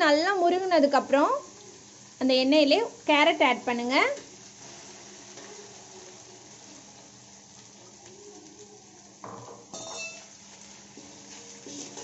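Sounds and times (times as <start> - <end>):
carrots sizzling in hot oil: 0.0 - 12.0
spatula stirring in pan: 4.2 - 12.0.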